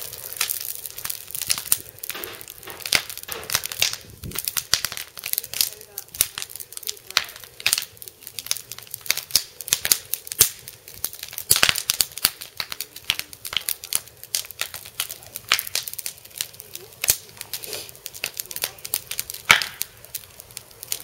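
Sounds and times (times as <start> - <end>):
burning wood crackling: 0.0 - 21.0
sharp pops and snaps: 0.0 - 21.0.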